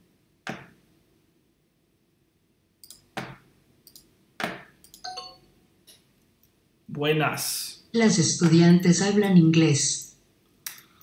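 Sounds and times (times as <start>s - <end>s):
computer mouse clicking: 2.8s - 5.0s.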